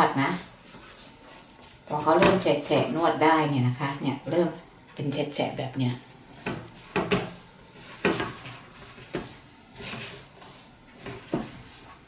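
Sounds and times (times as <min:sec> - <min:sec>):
spatula scraping a steel bowl: 0:00.0 - 0:03.2, 0:06.0 - 0:12.0.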